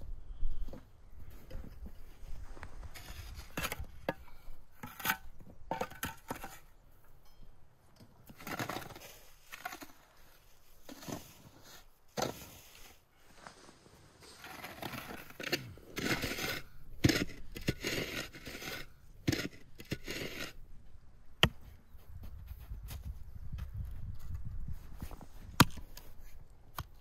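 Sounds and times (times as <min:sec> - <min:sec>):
shovel scraping snow: 0:02.2 - 0:03.9, 0:08.4 - 0:20.6.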